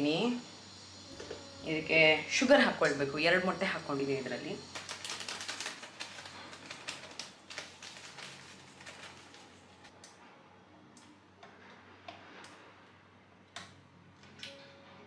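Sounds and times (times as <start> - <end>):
sugar pouring into metal bowl: 0.6 - 9.4.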